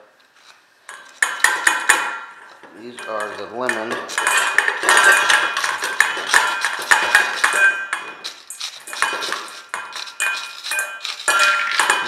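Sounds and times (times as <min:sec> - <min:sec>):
spatula scraping metal mesh: 0:00.9 - 0:12.0
candy pieces dropping into metal bowl: 0:02.8 - 0:12.0.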